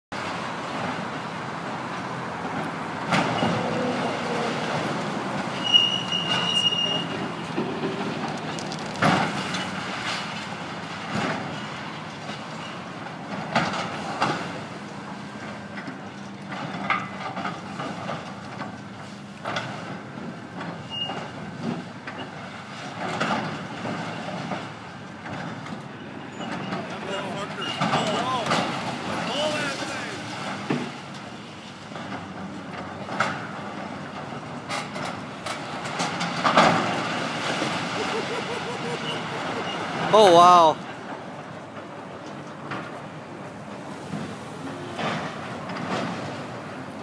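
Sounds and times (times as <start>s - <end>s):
excavator engine running: 0.2s - 20.8s, 23.5s - 47.0s
crashes of breaking debris: 27.6s - 31.1s, 35.1s - 38.5s.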